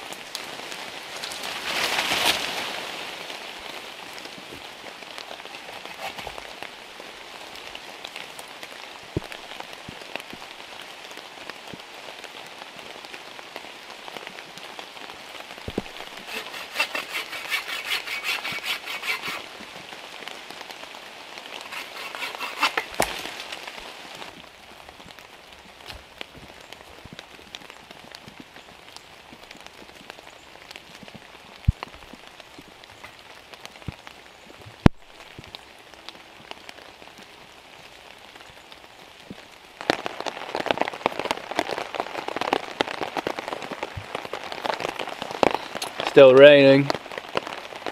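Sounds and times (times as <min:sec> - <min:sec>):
rain pattering: 0:00.0 - 0:16.3, 0:19.4 - 0:47.9.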